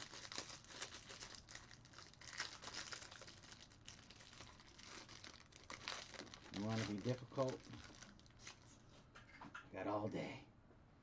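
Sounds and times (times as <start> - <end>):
plastic wrapper crinkling: 0.0 - 8.7.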